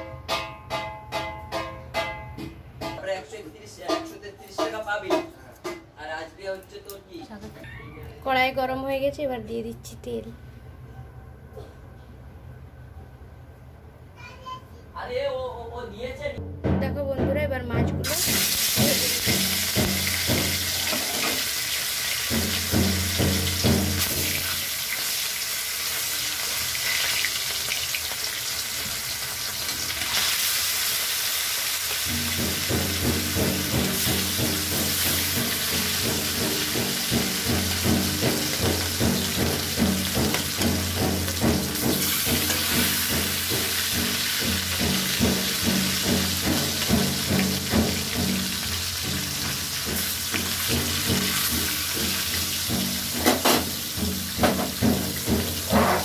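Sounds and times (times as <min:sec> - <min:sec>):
fish sizzling in hot oil: 0:18.0 - 0:56.0.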